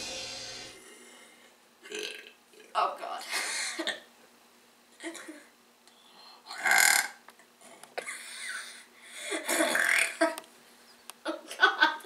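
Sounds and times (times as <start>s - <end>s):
woman laughing: 11.3s - 12.0s.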